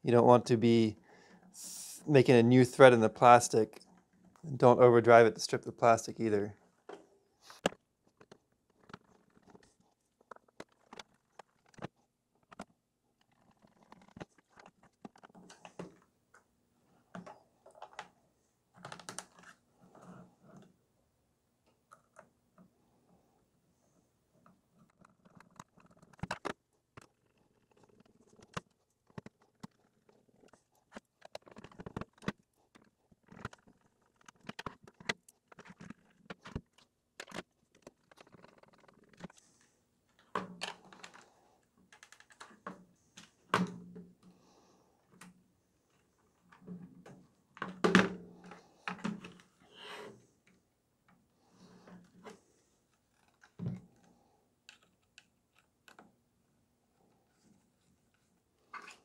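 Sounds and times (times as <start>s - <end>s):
plastic parts clicking and knocking: 6.5s - 16.5s, 17.1s - 20.8s, 24.4s - 56.2s.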